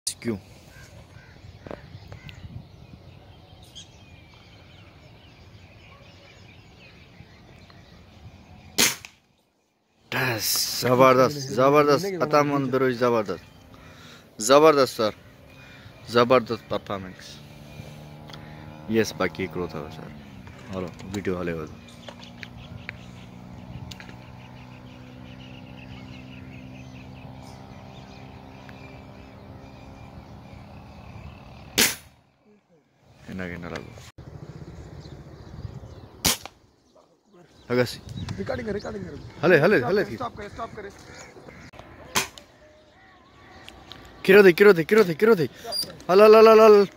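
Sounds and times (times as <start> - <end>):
distant bird calls: 0.1 - 46.9
air rifle shot: 8.8 - 9.2, 31.8 - 32.1, 36.2 - 36.6, 42.1 - 42.5.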